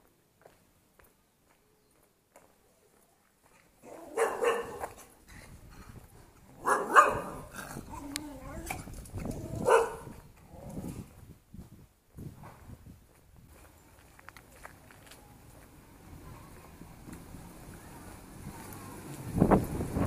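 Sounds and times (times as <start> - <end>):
dog yelping: 3.9 - 4.8, 9.5 - 10.1
dog barking: 3.9 - 5.0, 6.6 - 7.5, 9.6 - 10.1.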